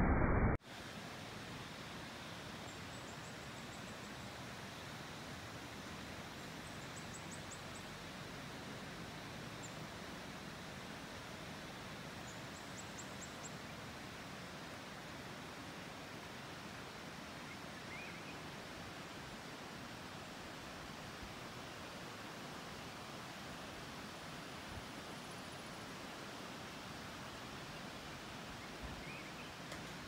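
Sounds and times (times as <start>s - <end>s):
soft outdoor hiss: 0.6s - 30.0s.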